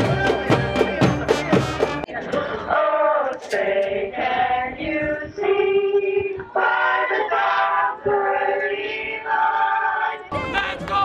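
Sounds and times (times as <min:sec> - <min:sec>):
girls singing together: 0:02.2 - 0:10.4.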